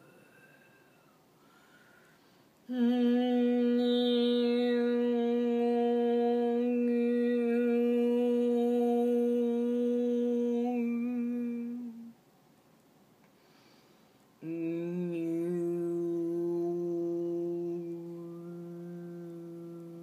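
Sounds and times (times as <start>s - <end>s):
woman humming a long note: 2.7s - 12.2s, 14.4s - 20.0s.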